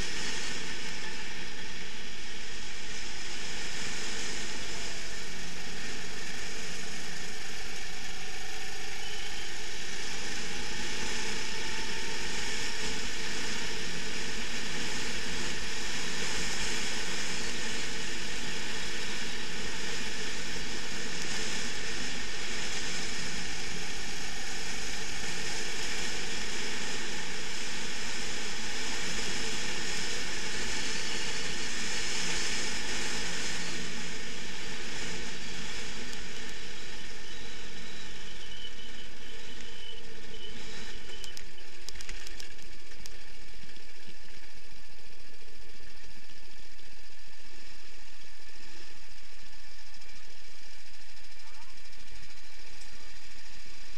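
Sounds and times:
wind and road noise: 0.0s - 49.6s
kart engine running hard: 0.0s - 53.9s.

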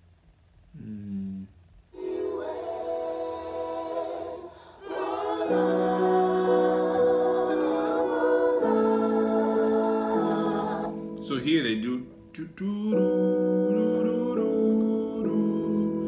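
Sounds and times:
a cappella group singing harmony: 2.0s - 11.4s, 12.7s - 16.0s.

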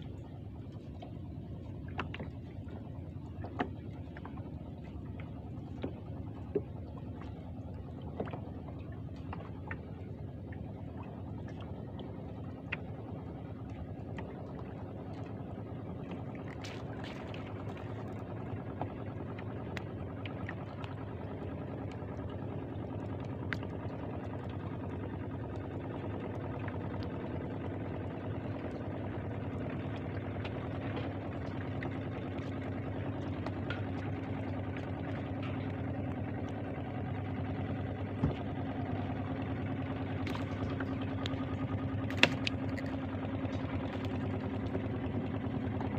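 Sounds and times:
boat motor humming: 0.0s - 45.9s
faint clicks and knocks: 0.6s - 7.4s, 29.7s - 36.6s, 40.1s - 44.9s.

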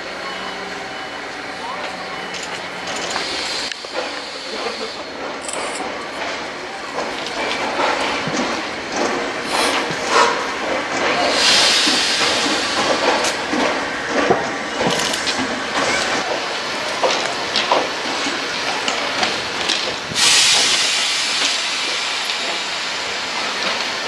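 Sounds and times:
loud air hiss: 3.0s - 5.4s, 9.2s - 10.6s, 11.2s - 13.5s, 20.1s - 23.6s.

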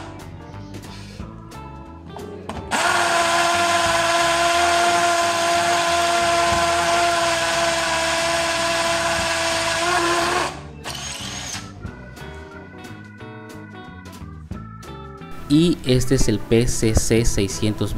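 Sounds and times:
hammer drill drilling into concrete: 2.7s - 11.8s.

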